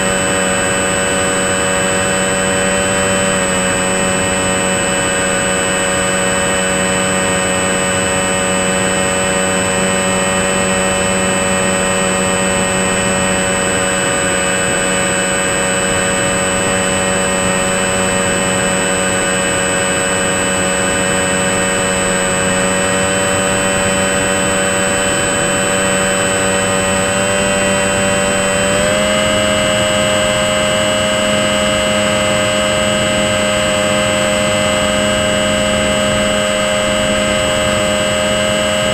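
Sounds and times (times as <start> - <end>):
model plane motor whine: 0.0 - 38.9.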